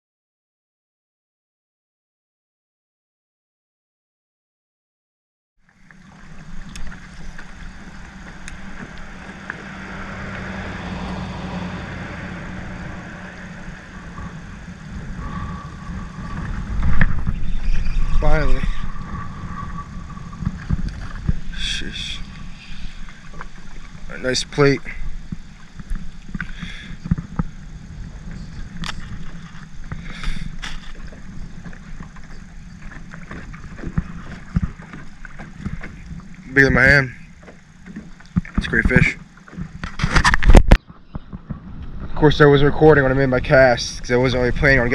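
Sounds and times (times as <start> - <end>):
boat motor humming: 5.6 - 44.9
steady low rumble: 5.7 - 44.9
faint clicks: 6.6 - 9.6.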